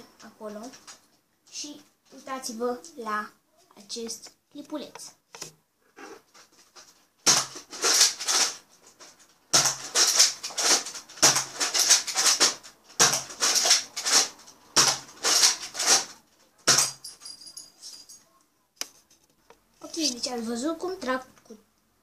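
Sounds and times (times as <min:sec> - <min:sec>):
toy blaster priming slide clatter: 0:07.7 - 0:08.6, 0:09.8 - 0:14.3, 0:14.9 - 0:16.1.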